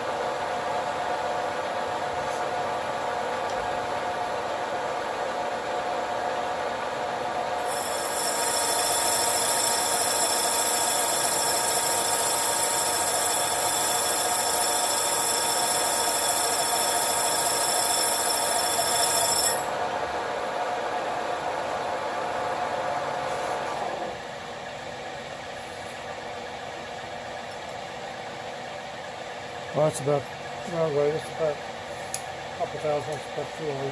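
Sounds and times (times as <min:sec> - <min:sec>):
high ringing cutting hiss: 0:07.6 - 0:19.8
lathe running: 0:07.6 - 0:19.9.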